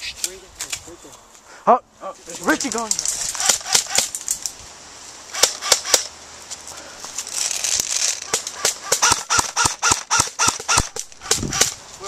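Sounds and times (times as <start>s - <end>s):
brush rustling: 0.0s - 12.0s
airsoft rifle shots popping: 5.3s - 6.1s, 8.2s - 11.8s.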